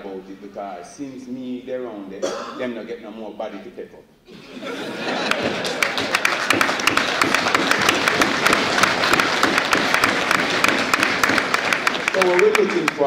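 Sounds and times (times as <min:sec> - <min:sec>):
audience applauding: 0:04.4 - 0:13.0.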